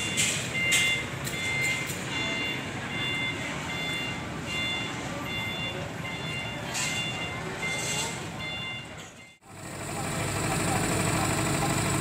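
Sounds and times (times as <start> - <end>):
reversing alarm beeping: 0.0 - 9.6
heavy vehicle engines running: 0.0 - 12.0.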